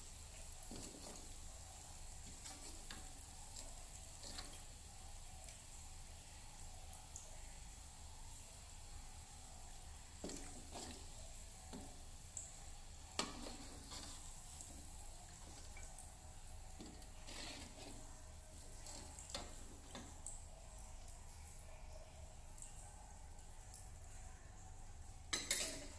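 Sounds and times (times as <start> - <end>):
oil sizzling: 0.0 - 21.6, 25.2 - 25.9
metal spoon clinking against wok: 25.3 - 25.9.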